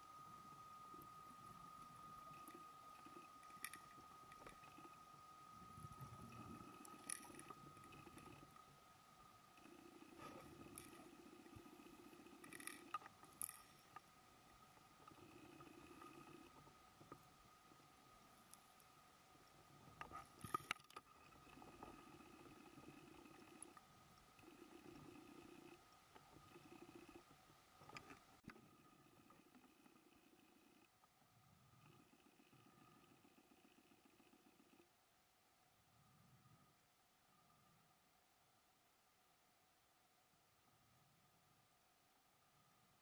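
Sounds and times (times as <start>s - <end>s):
faint high tone underwater: 0.0s - 43.0s
faint steady whine: 0.0s - 43.0s
low rumble underwater: 0.1s - 8.8s
faint clicks: 0.9s - 5.0s, 6.0s - 8.7s, 9.6s - 17.3s, 18.4s - 28.6s.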